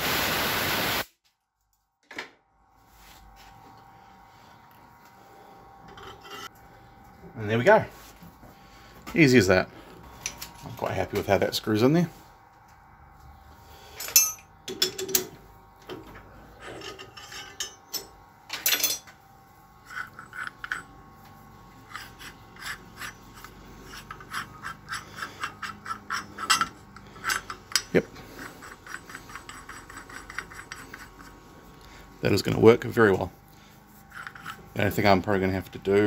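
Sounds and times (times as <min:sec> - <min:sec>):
metal rasp scraping metal: 0:05.9 - 0:06.6, 0:16.5 - 0:18.0, 0:19.8 - 0:31.7, 0:33.9 - 0:35.2.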